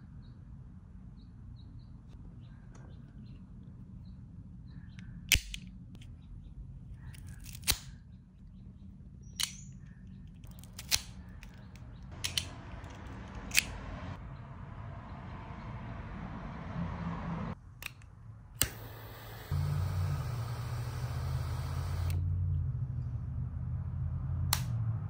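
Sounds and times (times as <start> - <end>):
cigar cutter snapping: 7.2 - 8.0, 10.5 - 13.8.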